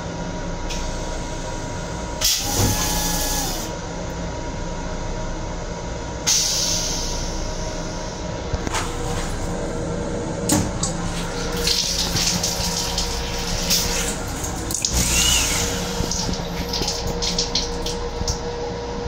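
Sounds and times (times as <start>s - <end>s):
railcar running rumble: 0.0s - 19.0s
faucet running into sink: 11.4s - 18.4s.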